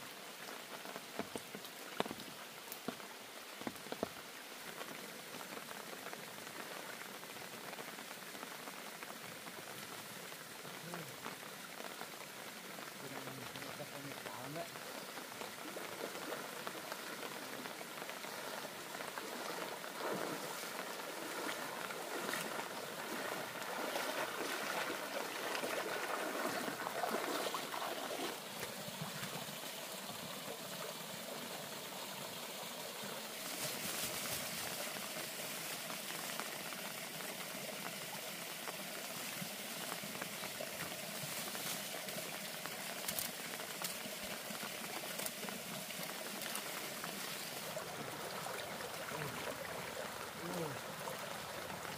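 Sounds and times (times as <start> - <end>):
running water trickling: 0.0 - 51.9
water drips: 11.2 - 51.9.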